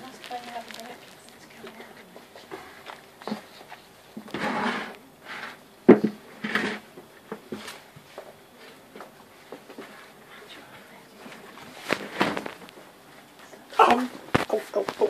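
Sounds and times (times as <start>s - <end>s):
puppies scuffling: 0.0s - 3.9s
bedding rustling: 0.0s - 5.6s, 11.1s - 15.0s.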